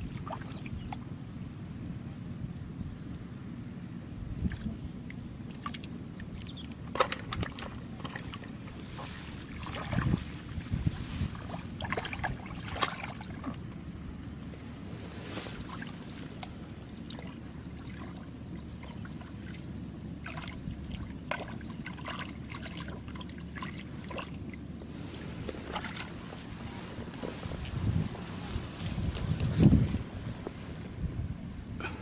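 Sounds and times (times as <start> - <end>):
wind on microphone: 4.1 - 5.1, 7.2 - 13.1, 24.8 - 32.0.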